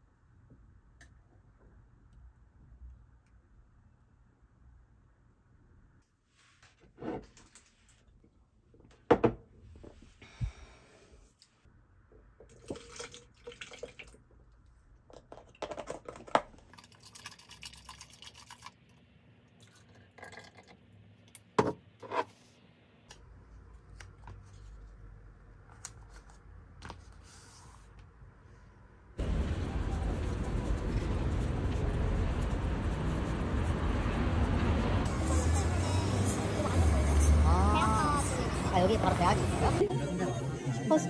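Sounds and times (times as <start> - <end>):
liquid sloshing and dripping: 12.4 - 14.7, 15.5 - 19.0.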